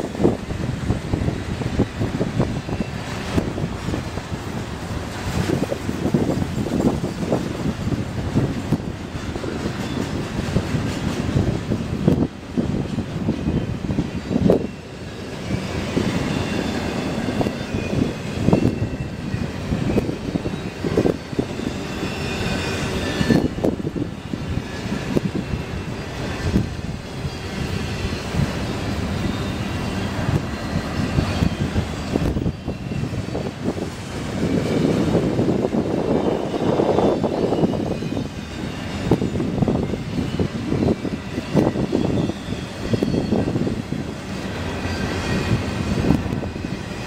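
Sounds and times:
steel wheels rumbling on rail: 0.0 - 47.0
faint high squeal: 13.4 - 43.9.

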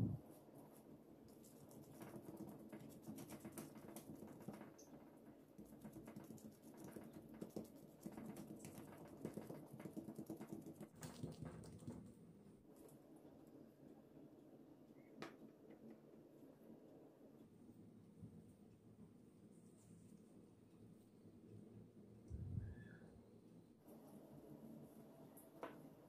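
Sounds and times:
gloved hand patting dough: 1.3 - 12.1.

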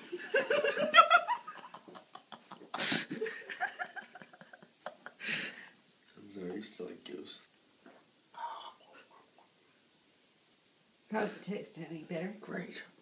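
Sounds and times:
laughter and giggling: 0.0 - 5.6.

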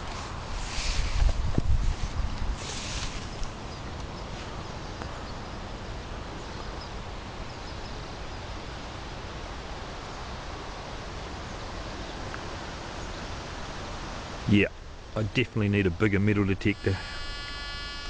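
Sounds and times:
even hiss: 0.0 - 3.6, 14.3 - 18.0.

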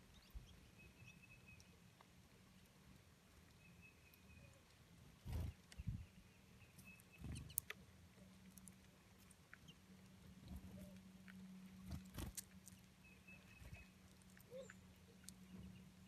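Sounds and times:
faint bird chirps: 0.0 - 1.8, 3.5 - 4.7, 5.3 - 7.7, 12.7 - 15.9
low steady hum: 0.0 - 16.0
birds pecking clicks and taps: 6.7 - 15.9.

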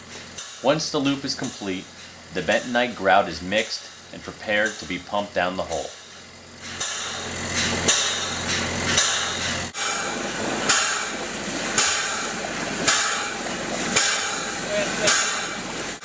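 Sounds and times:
rhythmic hissing stroke: 0.0 - 16.0
engine drone: 5.7 - 16.0.

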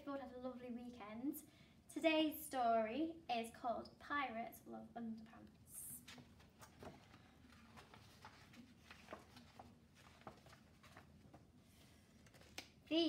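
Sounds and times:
book pages turning: 6.0 - 12.9.

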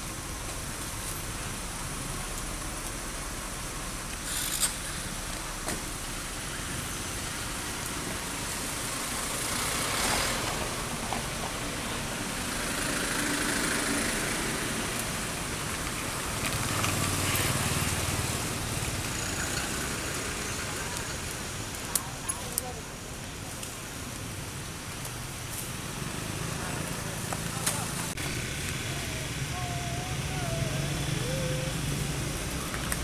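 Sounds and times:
outdoor background hiss: 0.0 - 33.0
distant motor vehicle running: 25.8 - 33.0.

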